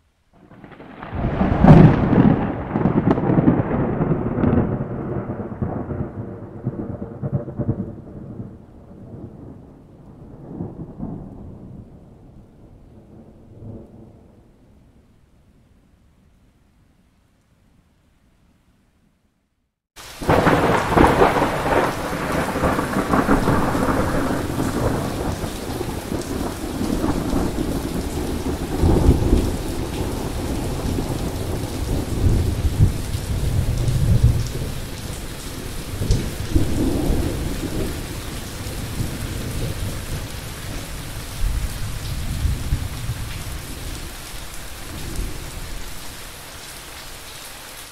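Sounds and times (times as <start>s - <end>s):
steady rain: 0.0s - 16.5s, 20.0s - 47.9s
thunder rolling: 0.4s - 12.3s, 20.2s - 44.2s.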